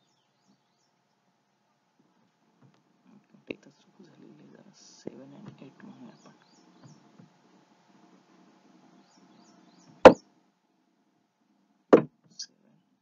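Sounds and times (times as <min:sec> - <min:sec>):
faint low hum: 0:00.0 - 0:13.0
loud sharp knock: 0:10.0 - 0:10.2.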